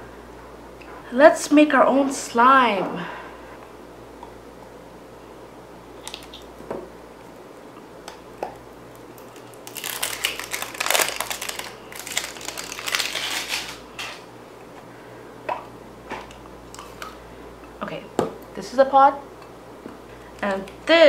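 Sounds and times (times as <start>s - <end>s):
plastic wrapping crinkling: 8.9s - 14.2s.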